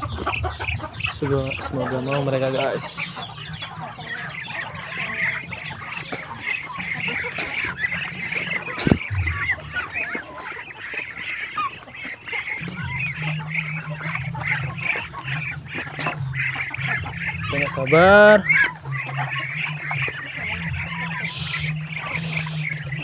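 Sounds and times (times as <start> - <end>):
ducks peeping and chirping: 0.0 - 23.0.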